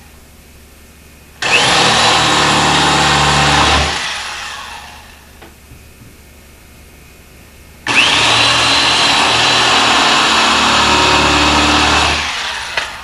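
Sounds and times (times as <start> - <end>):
power drill whining: 1.4 - 5.2, 7.9 - 13.0.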